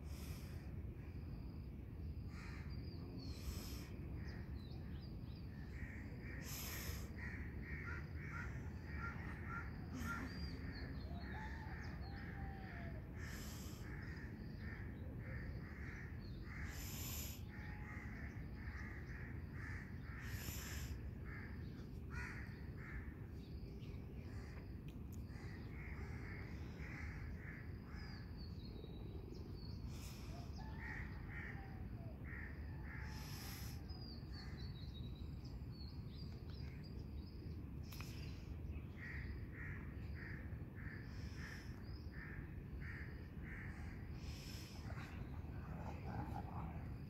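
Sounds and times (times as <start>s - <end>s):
birds calling: 5.6s - 24.7s.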